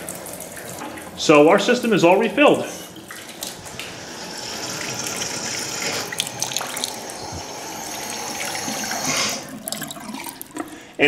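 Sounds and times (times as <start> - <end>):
faucet water running into basin: 0.0 - 11.0.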